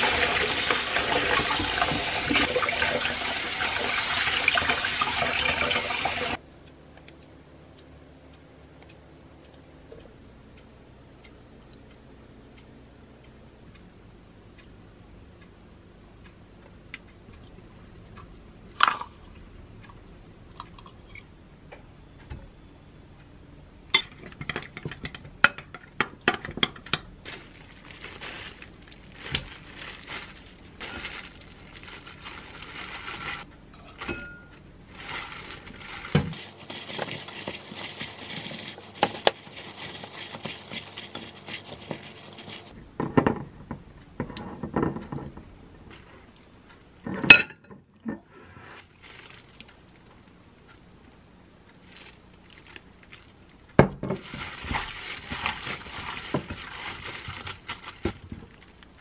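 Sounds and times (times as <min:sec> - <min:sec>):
gloved hand mixing noodles: 0:27.3 - 0:33.5, 0:34.9 - 0:42.7, 0:54.2 - 0:58.8.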